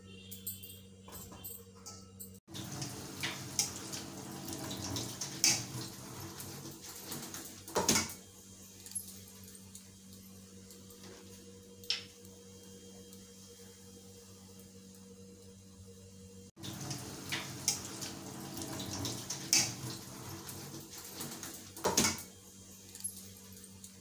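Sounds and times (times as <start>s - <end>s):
tap water splashing: 2.6s - 6.0s, 16.6s - 22.2s.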